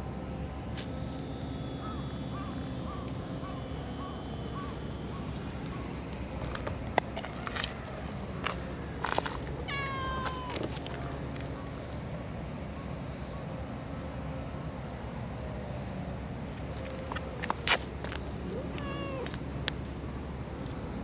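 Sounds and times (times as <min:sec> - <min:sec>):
cat meowing: 0:09.7 - 0:10.8, 0:18.5 - 0:19.3.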